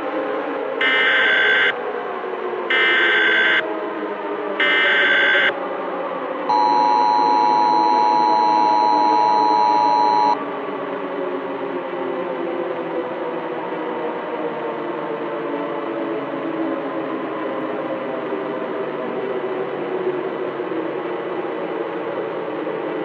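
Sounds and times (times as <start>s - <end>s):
two-tone attention signal: 0.8s - 1.7s, 2.7s - 3.6s, 4.6s - 5.5s, 6.5s - 10.4s
screechy digital data tones: 6.5s - 10.4s
low ambient drone: 6.5s - 10.8s.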